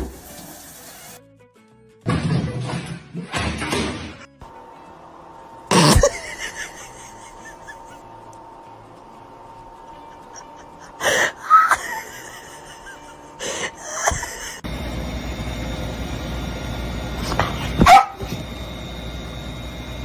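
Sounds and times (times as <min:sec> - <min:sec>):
dog barking: 0:17.8 - 0:18.3.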